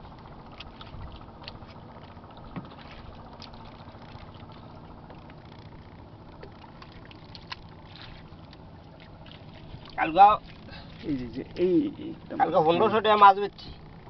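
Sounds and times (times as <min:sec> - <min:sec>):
wet mud squelches and clicks: 0:07.2 - 0:07.7.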